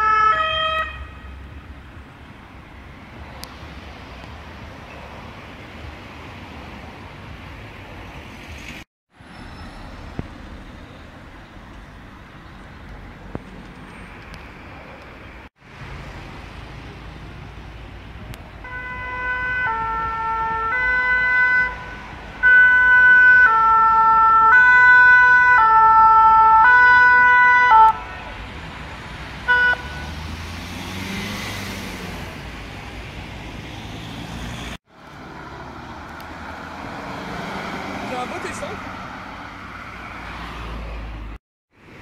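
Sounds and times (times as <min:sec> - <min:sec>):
two-tone emergency siren: 0:00.0 - 0:01.2, 0:18.6 - 0:28.3, 0:29.5 - 0:30.1
city traffic noise: 0:00.0 - 0:42.0.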